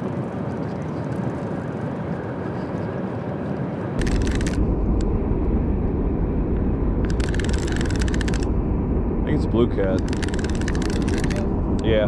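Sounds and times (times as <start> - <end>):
wind buffeting microphone: 0.0 - 12.0
fishing reel clicking rapidly: 7.1 - 8.4, 10.0 - 11.4.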